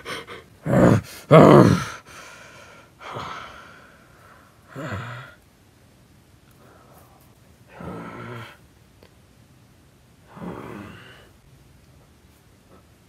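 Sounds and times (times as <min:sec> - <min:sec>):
person breathing heavily and gasping: 0:00.0 - 0:05.4.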